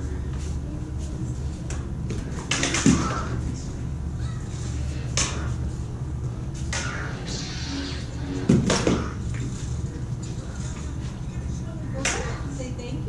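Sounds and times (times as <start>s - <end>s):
lightsaber hum: 0.0s - 13.0s
lightsabers clashing: 2.4s - 3.6s, 5.0s - 5.6s, 6.6s - 9.5s.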